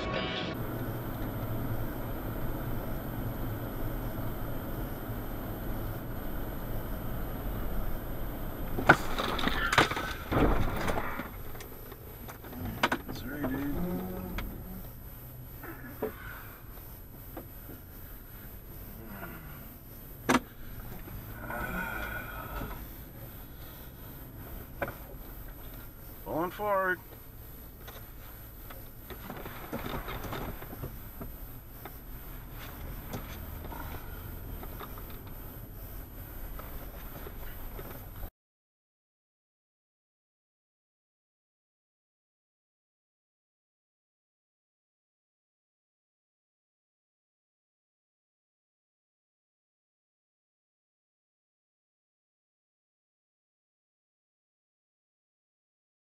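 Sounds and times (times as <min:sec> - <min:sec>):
car road and engine noise: 0:00.0 - 0:38.3
jumble of noise: 0:00.0 - 0:38.3.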